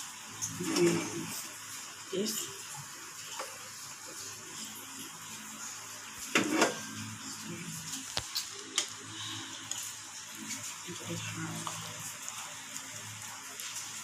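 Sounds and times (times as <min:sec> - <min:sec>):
frying pan scraping and clattering: 0:06.3 - 0:06.9.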